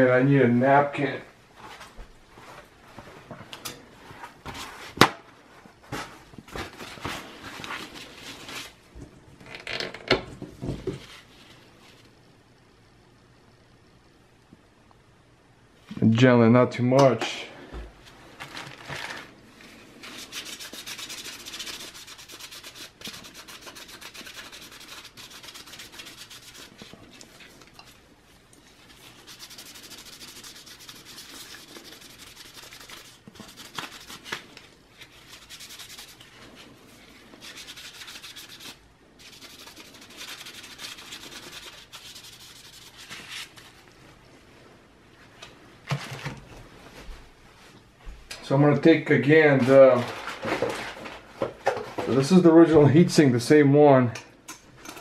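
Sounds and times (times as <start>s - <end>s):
paper napkin scrubbing metal: 20.0s - 27.0s, 28.8s - 34.4s, 37.0s - 43.6s.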